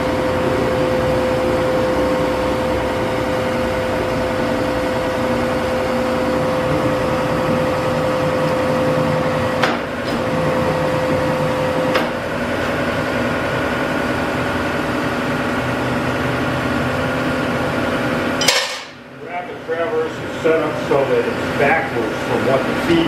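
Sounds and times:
metal shaper machinery humming: 0.0s - 23.0s.

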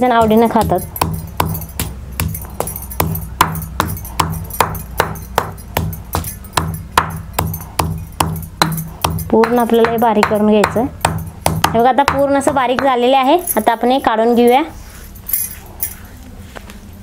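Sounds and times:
stone pestle pounding in mortar: 0.0s - 13.5s.

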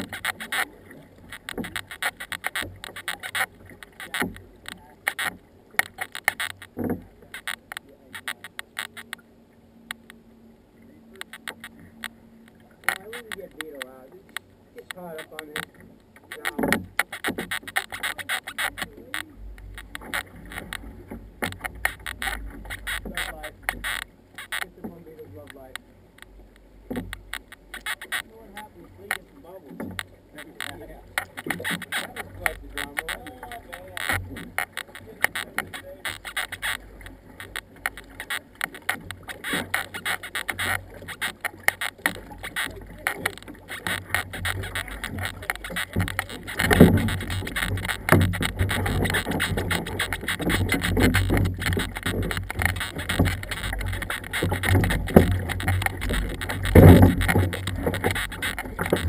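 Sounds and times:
clicks: 0.0s - 9.3s, 9.9s - 10.2s, 10.8s - 59.0s
low steady rumble: 0.0s - 17.0s, 18.6s - 31.4s
paddles slapping hull: 0.0s - 59.0s
water splashing off paddles: 10.8s - 59.0s.

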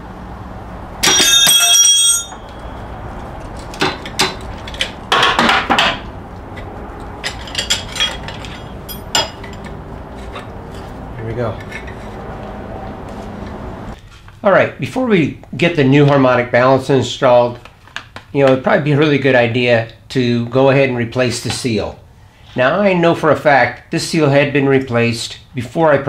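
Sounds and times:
loud ringing metallic bang: 1.0s - 3.1s
steel clinks and scrapes: 1.0s - 3.6s, 7.0s - 12.2s.

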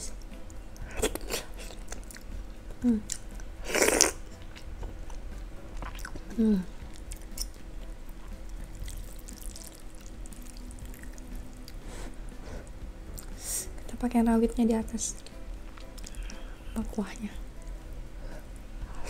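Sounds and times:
soft chewing: 0.1s - 13.4s, 15.1s - 16.8s
person humming mm: 2.8s - 4.1s, 6.3s - 6.8s.

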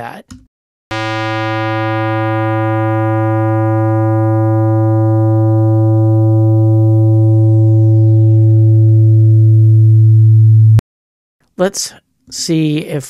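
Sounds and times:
synthesized low buzzy tone: 0.9s - 10.8s.

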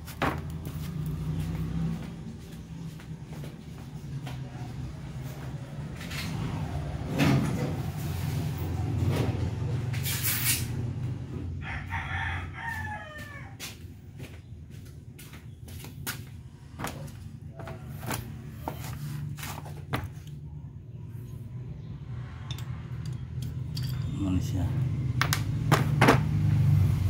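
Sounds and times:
rooster crowing: 11.5s - 13.8s.

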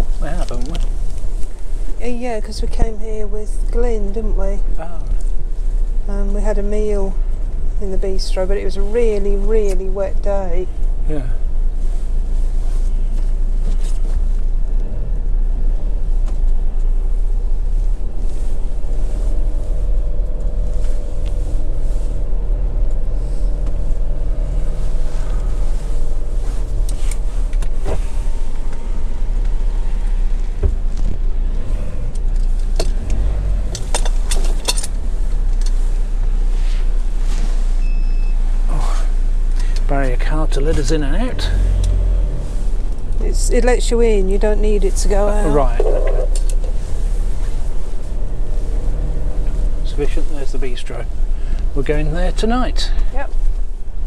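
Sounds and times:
engine and road rumble: 0.0s - 54.0s
sharp clicks and rattles: 32.0s - 35.8s.

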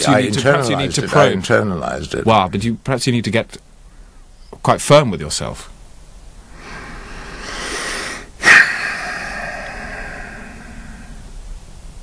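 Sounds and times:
loud breath blast out: 6.5s - 11.4s
man breathing in noisily: 6.5s - 11.5s.

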